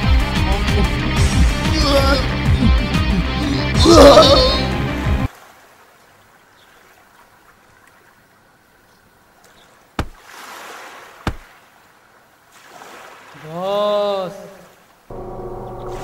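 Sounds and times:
sharp knocks: 10.0 - 10.2, 11.2 - 11.5
sea surf: 10.0 - 16.0.

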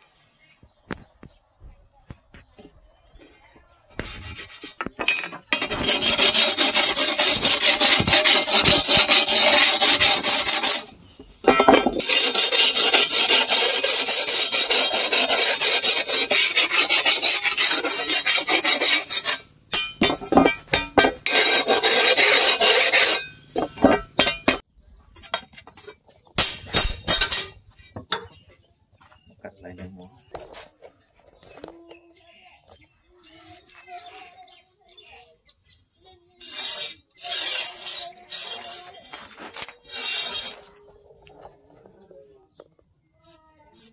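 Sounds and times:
metal-on-metal scraping: 4.0 - 28.6, 33.2 - 42.0.

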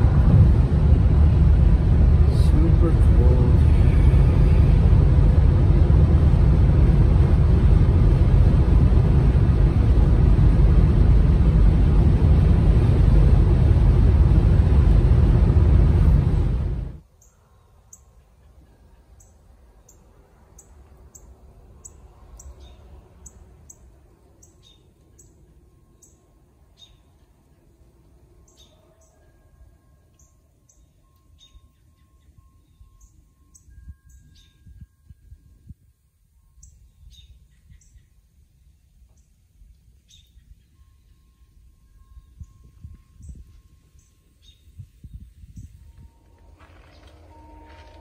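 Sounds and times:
car road and tyre noise: 0.0 - 29.3, 42.5 - 48.0
small birds chirping: 17.1 - 27.2.

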